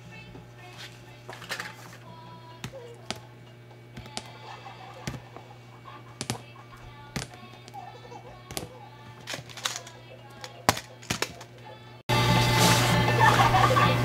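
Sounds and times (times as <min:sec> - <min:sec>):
quiet background music: 0:00.0 - 0:14.0
plastic toy tapping on drawers: 0:08.5 - 0:11.5.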